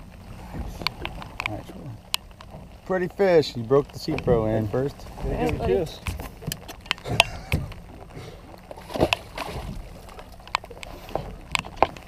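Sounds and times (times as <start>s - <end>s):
water splashing: 0.0s - 12.0s
sharp clicks and knocks: 6.0s - 7.9s, 10.4s - 12.0s.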